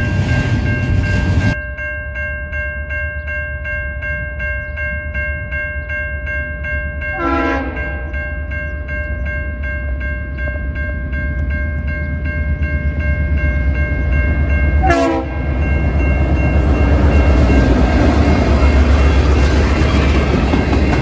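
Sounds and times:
crossing bell ringing: 0.0s - 21.0s
train on the rails: 0.0s - 21.0s
train horn blast: 7.2s - 8.0s, 14.8s - 15.5s
locomotive engine rumble: 7.6s - 21.0s.

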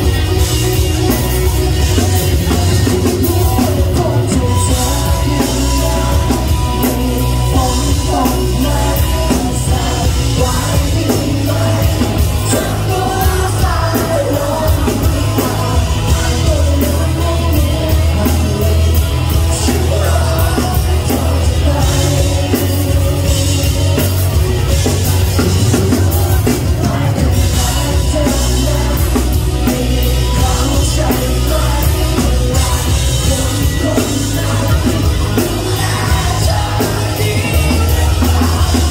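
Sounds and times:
man singing into a microphone: 0.0s - 38.9s
rock band playing: 0.0s - 38.9s.

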